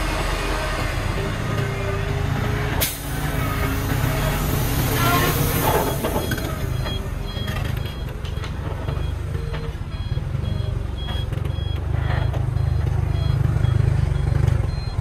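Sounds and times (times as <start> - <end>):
diesel engine rumble: 0.0 - 15.0
reversing alarm beeps: 5.6 - 15.0.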